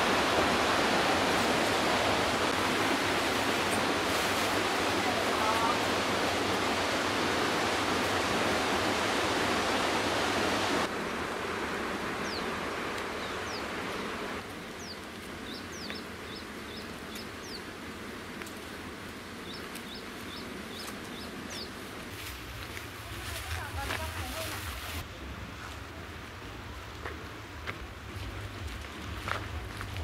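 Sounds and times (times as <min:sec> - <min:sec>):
rushing water: 0:00.0 - 0:16.4, 0:19.0 - 0:30.0.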